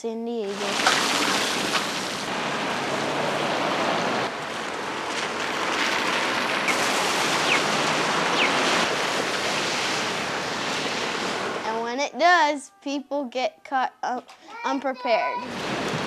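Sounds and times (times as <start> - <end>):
heavy rain on wet pavement: 0.6 - 11.6.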